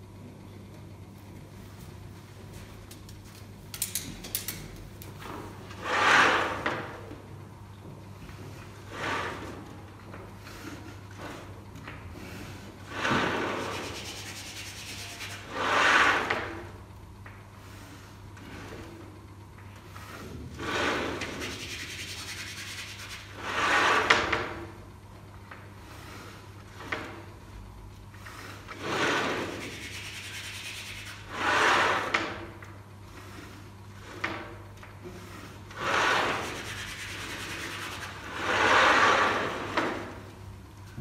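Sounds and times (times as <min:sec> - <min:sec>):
chalk scraping on chalkboard: 0:12.9 - 0:16.5, 0:20.1 - 0:24.3, 0:28.4 - 0:32.4, 0:35.1 - 0:39.7.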